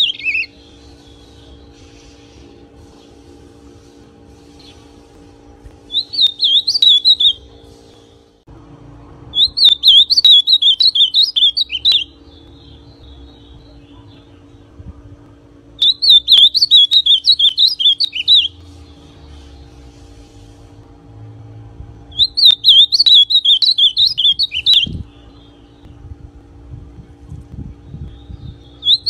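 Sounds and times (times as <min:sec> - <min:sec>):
bird singing warbled phrases: 0:00.0 - 0:01.8, 0:05.9 - 0:07.5, 0:09.3 - 0:14.8, 0:15.7 - 0:19.8, 0:22.1 - 0:26.1, 0:27.7 - 0:29.0
faint steady hum: 0:00.0 - 0:29.0.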